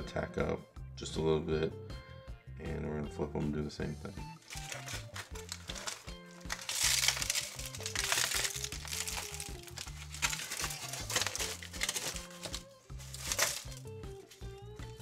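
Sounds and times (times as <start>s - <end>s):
background music with bass line: 0.0s - 15.0s
aluminum foil crinkling: 4.4s - 14.8s.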